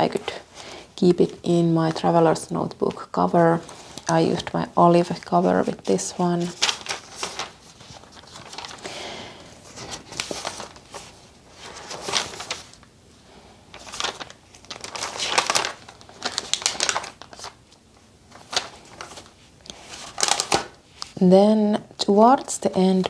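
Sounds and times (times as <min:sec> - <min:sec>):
paper pages turning: 0:03.6 - 0:09.0, 0:09.6 - 0:12.9, 0:13.7 - 0:21.2.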